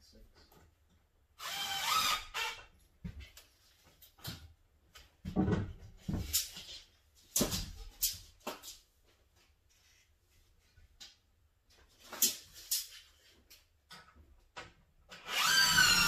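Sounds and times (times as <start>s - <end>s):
wooden knocks and clunks: 5.2s - 6.4s.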